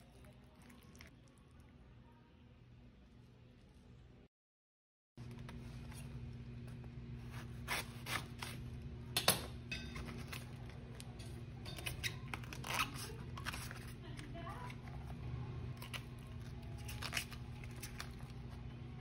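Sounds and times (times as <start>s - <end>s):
low steady hum: 5.2s - 19.0s
leaves snapping and rustling: 15.8s - 18.5s.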